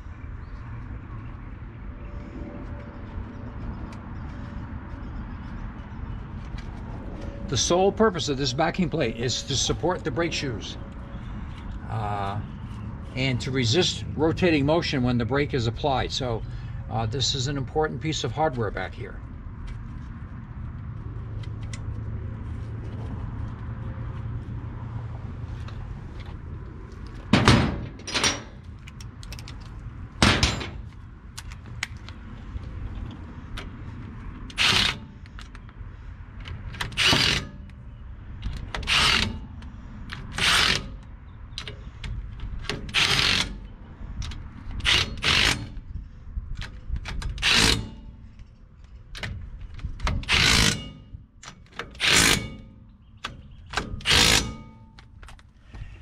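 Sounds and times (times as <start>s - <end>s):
cordless impact wrench bursts: 34.5s - 35.0s, 38.9s - 39.3s, 42.9s - 43.6s, 44.8s - 45.7s, 47.4s - 47.9s, 54.0s - 54.6s.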